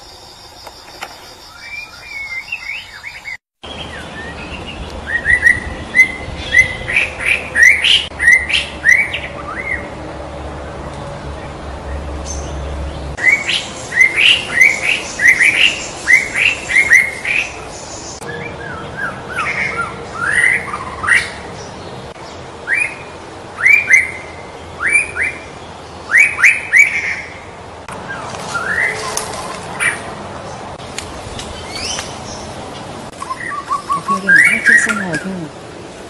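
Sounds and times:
bird singing whistled notes: 0:00.0 - 0:09.9.

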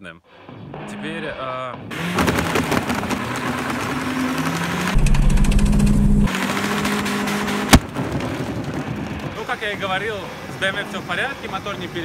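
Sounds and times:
engine stuttering: 0:00.7 - 0:12.0
car engine at high revs: 0:01.9 - 0:09.4
tyres spinning on grass: 0:01.9 - 0:10.1.

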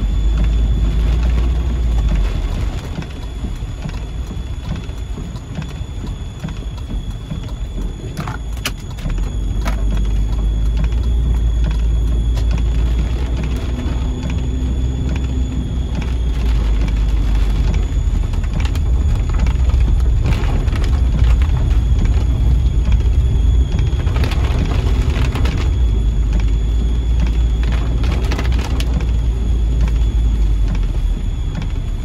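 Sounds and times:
car and tyres on wet road: 0:00.0 - 0:32.0
heavy rain on car roof: 0:00.0 - 0:32.0.

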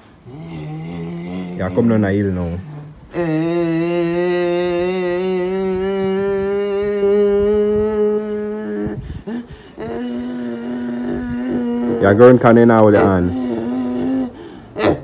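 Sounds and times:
man imitating truck engine drone: 0:00.0 - 0:15.0.

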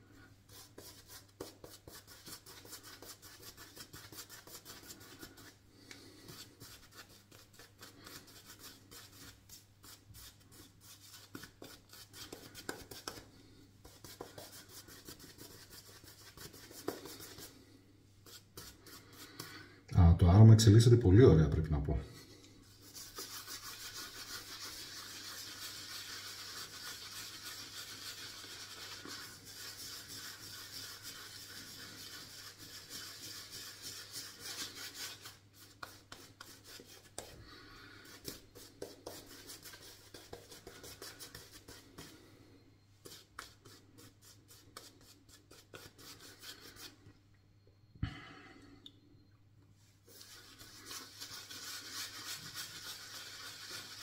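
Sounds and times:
shaving brush rubbing on stubble: 0:22.7 - 0:37.2, 0:50.1 - 0:54.0.

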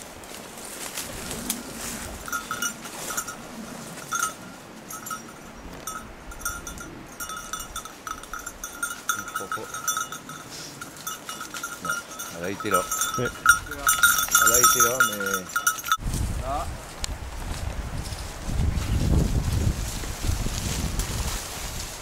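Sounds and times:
dog collar bell jingling: 0:02.2 - 0:16.0.

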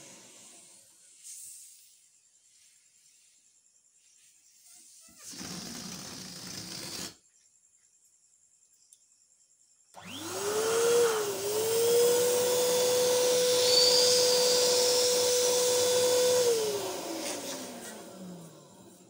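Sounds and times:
balloon pump motor whine: 0:00.0 - 0:01.0, 0:05.2 - 0:07.1, 0:10.0 - 0:19.0.

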